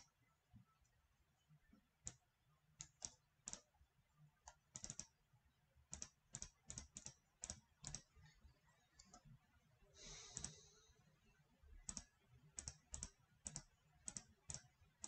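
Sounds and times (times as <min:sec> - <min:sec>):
computer mouse clicks: 0:02.0 - 0:03.7, 0:04.4 - 0:05.2, 0:05.9 - 0:09.4, 0:10.2 - 0:10.7, 0:11.8 - 0:15.0.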